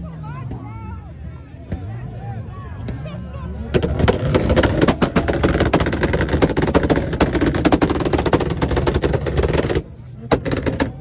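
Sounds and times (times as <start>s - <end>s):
car engine running: 3.7s - 11.0s
exhaust bangs and pops: 3.7s - 11.0s.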